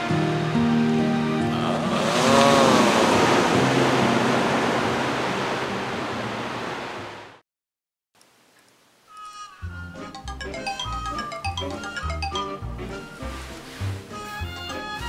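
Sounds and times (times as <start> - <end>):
ocean surf hissing: 1.4 - 7.3.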